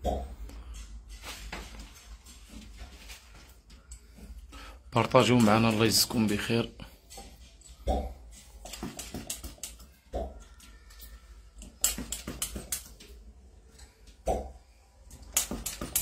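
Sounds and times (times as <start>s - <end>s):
cupping pump clicks and hisses: 11.6s - 13.0s, 15.1s - 16.0s.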